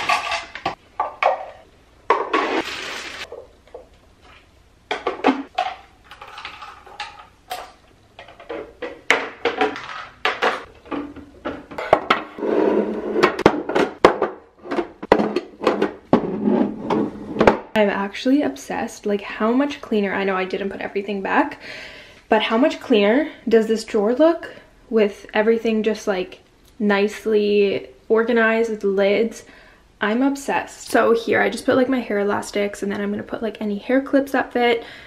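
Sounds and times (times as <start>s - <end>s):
plastic bins clicking and clacking: 0.0s - 1.6s, 4.9s - 12.4s.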